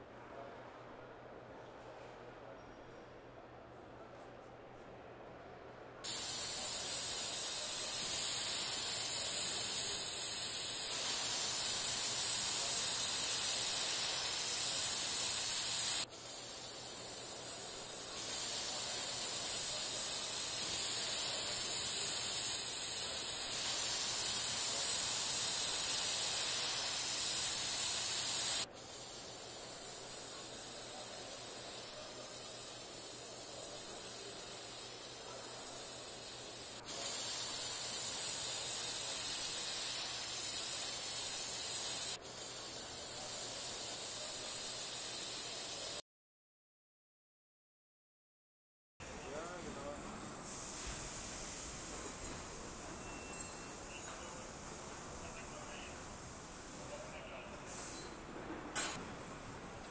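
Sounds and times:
paint robots spraying hiss: 6.0 - 46.0, 50.4 - 58.0.

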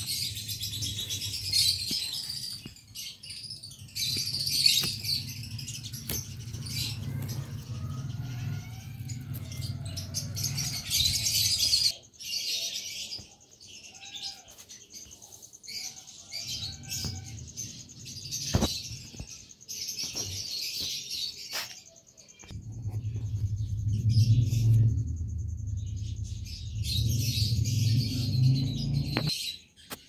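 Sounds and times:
small birds chirping: 0.0 - 30.0
low rumble: 4.9 - 11.9, 22.5 - 29.3.

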